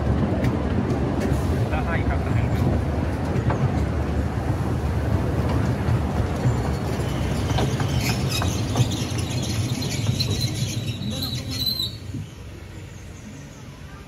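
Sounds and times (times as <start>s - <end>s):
rail clicks: 0.0s - 12.6s
miniature train rumbling on rails: 0.0s - 14.0s
wheels squealing on curve: 6.5s - 12.4s.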